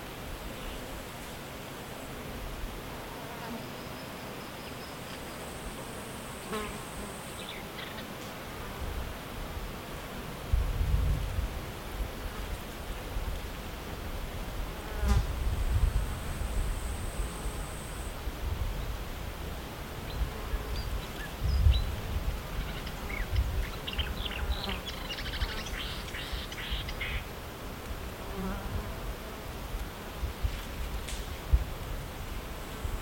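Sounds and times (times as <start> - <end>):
flying insect buzzing: 5.2 - 9.1.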